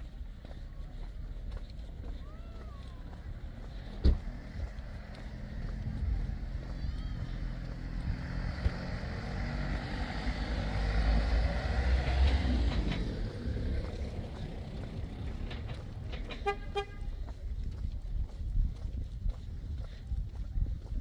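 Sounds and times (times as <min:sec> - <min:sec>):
vehicle driving past: 0:00.7 - 0:17.4.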